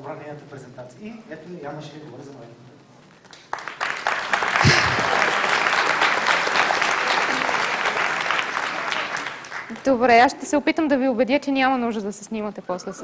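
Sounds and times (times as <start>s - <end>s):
audience clapping: 3.2s - 10.2s.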